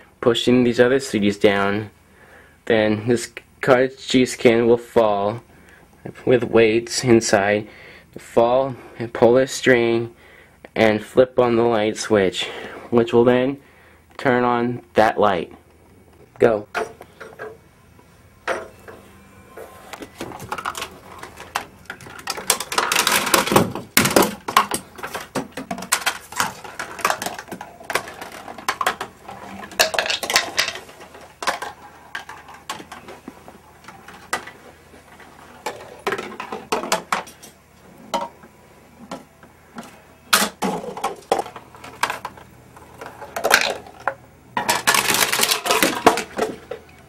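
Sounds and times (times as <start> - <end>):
objects knocking and falling: 20.0 - 38.5, 39.1 - 46.9.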